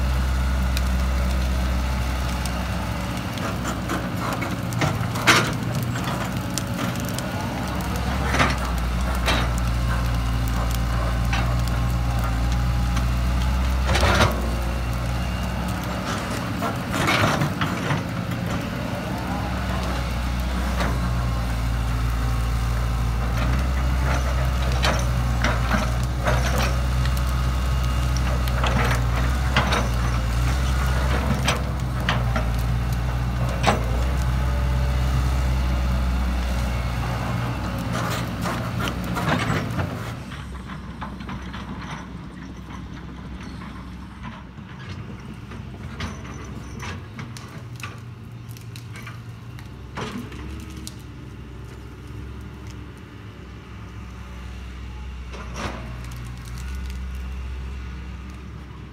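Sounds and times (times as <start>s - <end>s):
excavator diesel engine: 0.0s - 58.9s
branches snapping: 55.8s - 57.5s.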